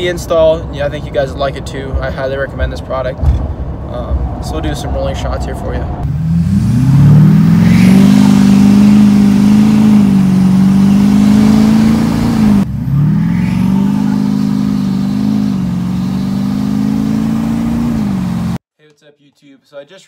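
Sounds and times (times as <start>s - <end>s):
transmission shifting up: 3.2s - 18.6s
diesel engine accelerating: 3.5s - 18.6s.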